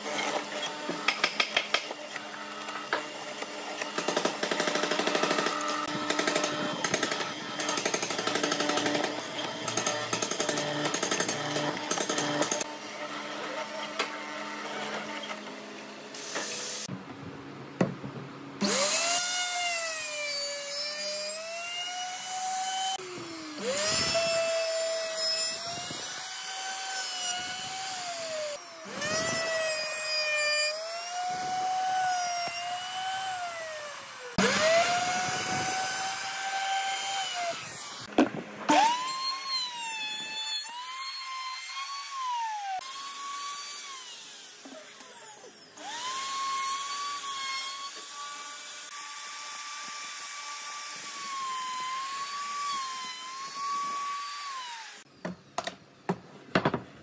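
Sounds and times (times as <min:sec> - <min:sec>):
electric router whining: 0:18.6 - 0:55.1.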